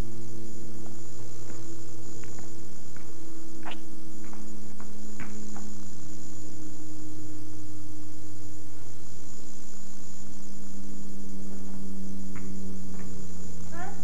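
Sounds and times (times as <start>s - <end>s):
electrical hum: 0.0s - 14.0s.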